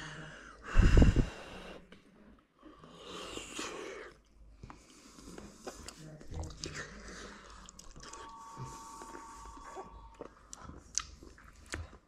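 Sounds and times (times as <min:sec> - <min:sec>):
breathing through nose: 0:00.0 - 0:01.8
man chewing pasta: 0:03.1 - 0:12.0.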